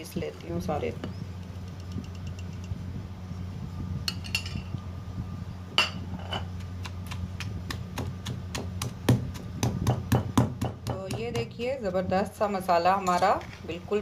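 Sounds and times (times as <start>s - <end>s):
low steady hum: 0.0s - 14.0s
pestle pounding in a mortar: 6.4s - 11.7s.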